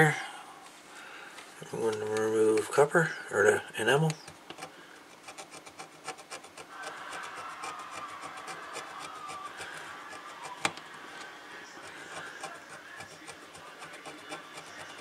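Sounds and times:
tool scraping circuit board: 4.0s - 15.0s.

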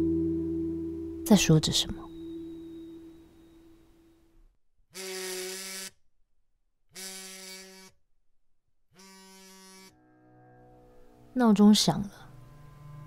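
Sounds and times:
held musical tone: 0.0s - 3.9s.

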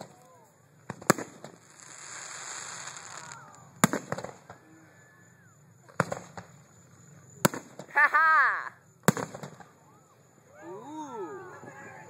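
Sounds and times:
fireworks bursting with echoing bangs: 0.8s - 4.6s, 5.9s - 6.6s, 7.4s - 7.9s, 9.0s - 9.7s.

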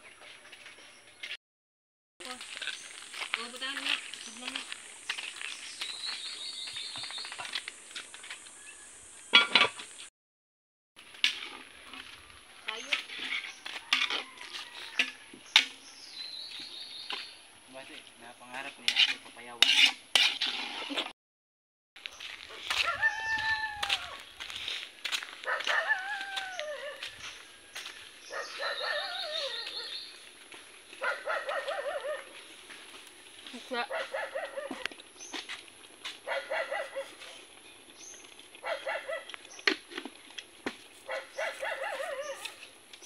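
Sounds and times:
rooster crowing: 13.6s - 15.4s, 22.7s - 24.2s, 25.5s - 27.1s
animal calling with wavering pitch: 28.7s - 30.0s.

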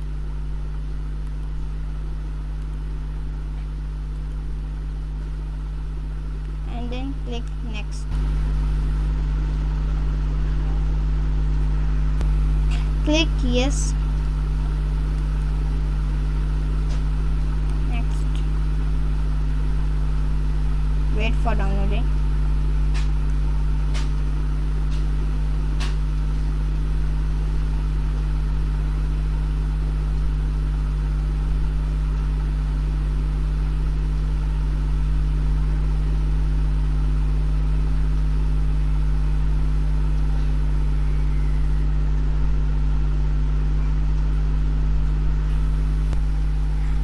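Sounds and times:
low machine hum: 0.0s - 47.0s.

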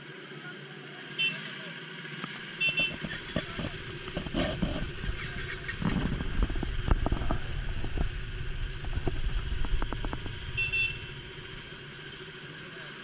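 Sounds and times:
motorcycles idling: 0.0s - 13.0s.

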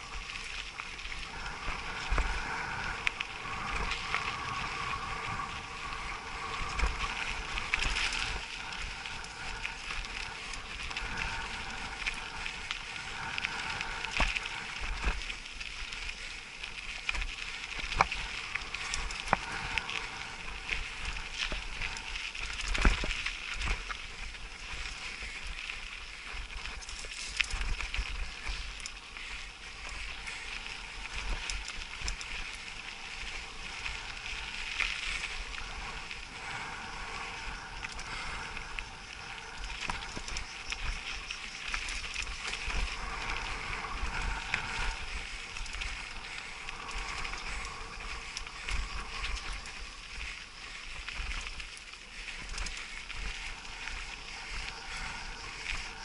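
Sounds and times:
bike rattling: 0.0s - 56.0s
bike tyres crunching on gravel: 0.0s - 56.0s
insects chirring: 0.0s - 56.0s.

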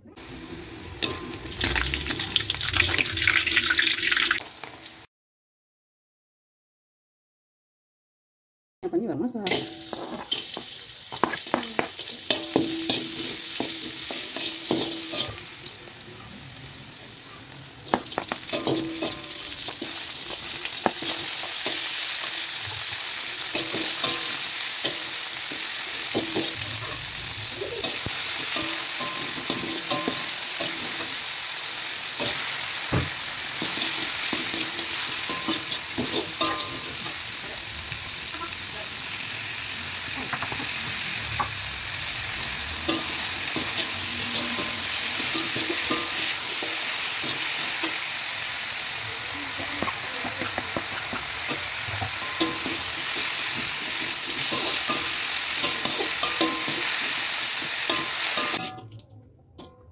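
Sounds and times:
food sizzling in hot oil: 0.1s - 5.1s, 9.5s - 58.7s
metal spatula scraping a wok: 9.5s - 15.5s, 32.2s - 37.4s, 42.2s - 48.2s, 49.5s - 58.8s.

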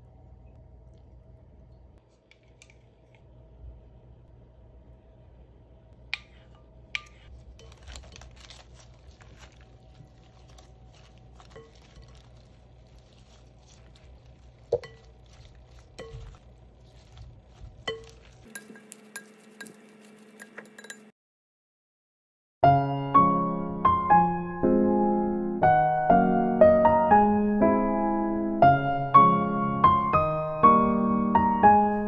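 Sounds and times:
salad leaves rustling: 7.1s - 20.5s
salad servers clinking on glass bowl: 10.5s - 12.6s, 14.6s - 16.4s, 17.0s - 21.1s.

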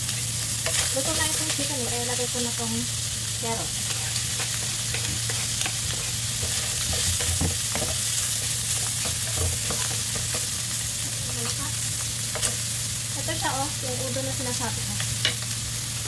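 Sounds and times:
food sizzling in a wok: 0.0s - 16.0s
spatula scraping and tapping pan: 0.6s - 1.6s, 3.9s - 10.6s, 12.3s - 12.6s.

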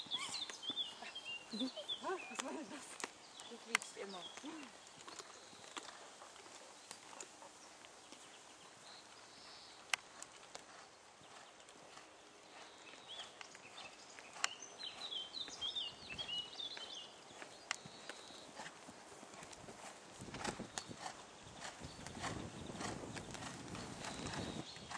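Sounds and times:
small bird twittering: 0.0s - 2.6s
horse hooves cantering on sand: 0.0s - 24.9s
sharp clicks: 2.3s - 5.9s.

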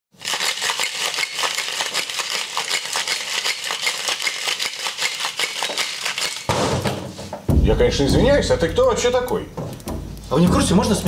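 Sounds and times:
ice rattling in a cocktail shaker: 0.1s - 6.5s.

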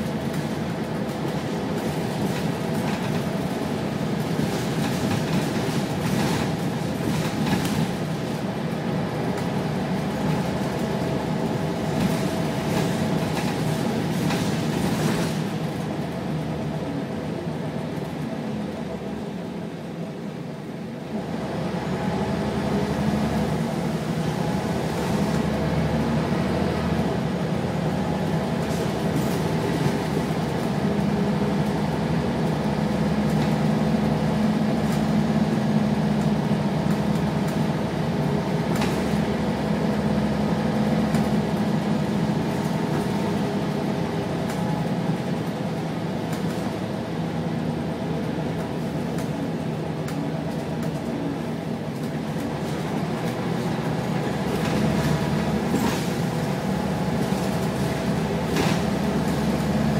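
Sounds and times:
knocks and rattles from bus body: 0.0s - 16.0s, 27.8s - 46.9s, 48.2s - 59.9s
bus engine drone: 0.0s - 59.9s
road noise: 0.0s - 59.9s.

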